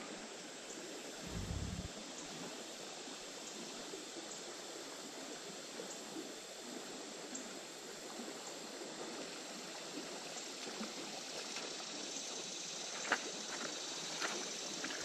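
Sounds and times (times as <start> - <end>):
river water flowing: 1.2 - 2.3.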